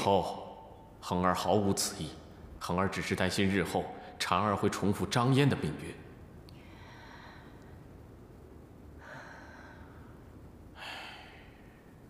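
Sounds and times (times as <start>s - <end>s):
person breathing: 6.5s - 8.0s, 8.9s - 12.0s.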